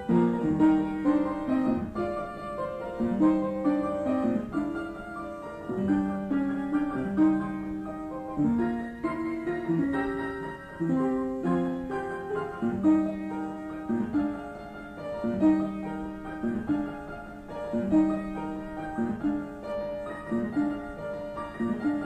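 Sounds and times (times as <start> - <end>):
solo piano classical piece: 0.0 - 22.0.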